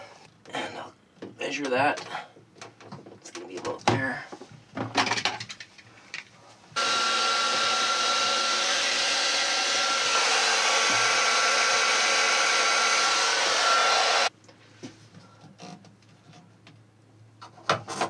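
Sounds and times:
heat gun blowing air: 6.8s - 14.3s.

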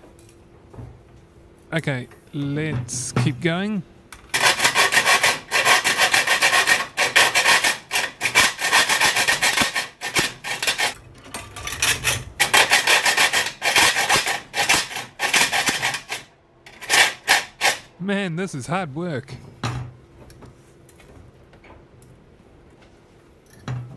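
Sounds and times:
hacksaw rasping on metal: 4.3s - 11.0s, 11.8s - 17.9s.

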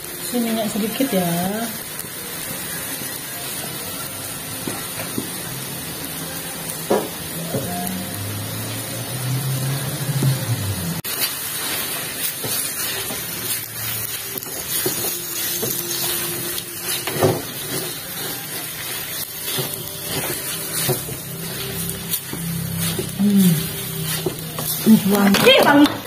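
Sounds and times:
meat sizzling in oil: 0.0s - 26.0s
spatula scraping a wok: 11.0s - 25.8s.

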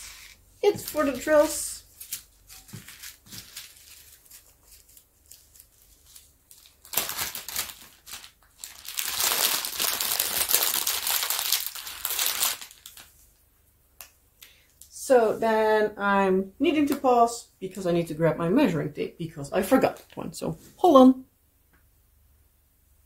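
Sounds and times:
plastic bags crinkling: 0.0s - 13.2s.

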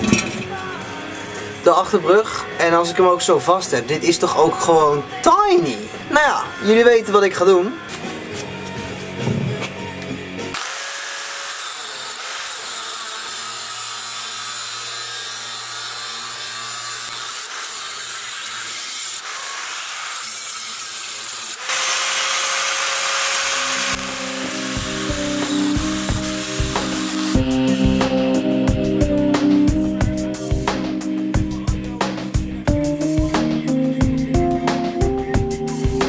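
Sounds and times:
background music with guitar and beat: 0.0s - 10.6s, 24.0s - 36.0s
angle grinder grinding steel: 10.5s - 29.7s.

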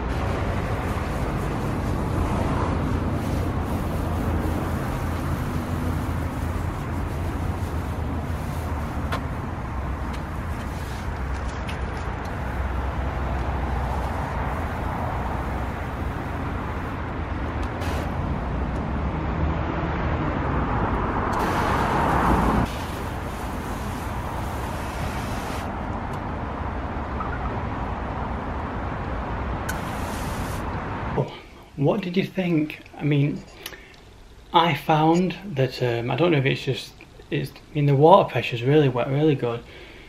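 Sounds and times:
foam gun spraying hiss: 0.1s - 11.2s, 12.3s - 17.0s, 17.8s - 18.3s, 21.4s - 25.7s, 29.7s - 30.7s.

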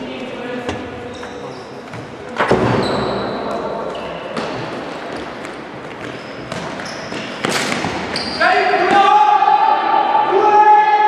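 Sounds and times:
ball thumps echoing in hall: 0.0s - 9.8s
sneakers squeaking on court floor: 0.5s - 8.9s.

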